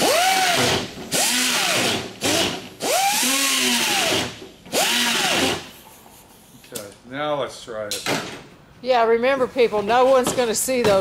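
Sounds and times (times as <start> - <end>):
power drill whining: 0.0 - 5.8.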